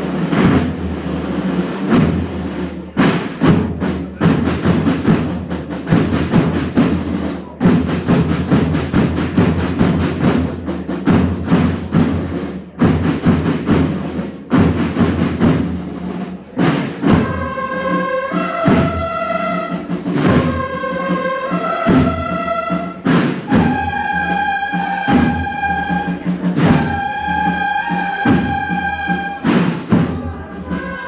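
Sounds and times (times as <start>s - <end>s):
drums beating march rhythm: 0.0s - 31.0s
brass playing slow melody: 17.3s - 22.9s.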